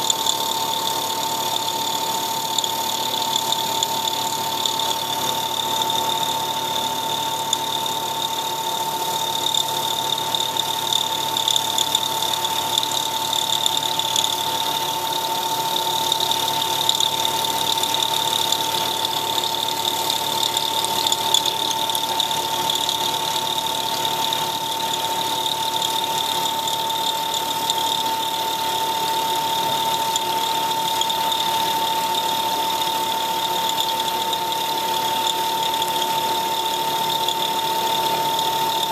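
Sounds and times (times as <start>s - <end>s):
milling machine whine: 0.0s - 38.9s.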